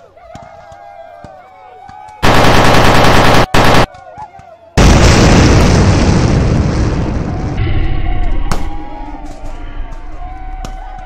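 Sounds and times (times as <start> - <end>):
machine-gun fire: 2.2 - 3.9
explosion blast: 4.8 - 8.7.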